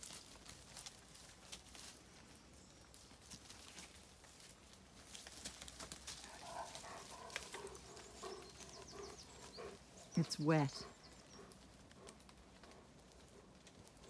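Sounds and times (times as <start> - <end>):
twigs crackling and snapping: 0.0 - 10.2, 10.8 - 14.0
rustling in dry bracken: 0.0 - 14.0
dogs snuffling: 5.1 - 14.0.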